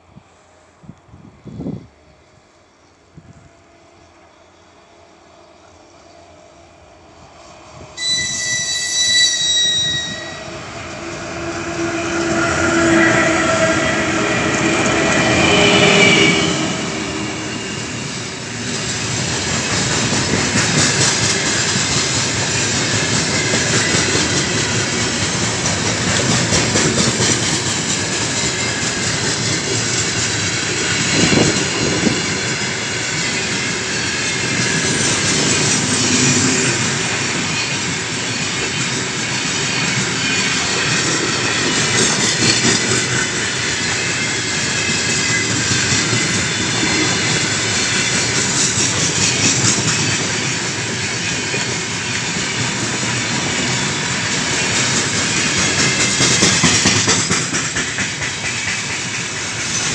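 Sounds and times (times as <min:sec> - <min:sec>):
freight train rolling past: 0:00.0 - 0:59.9
locomotive whistle blast: 0:08.0 - 0:17.2
train wheels clicking: 0:10.7 - 0:59.9.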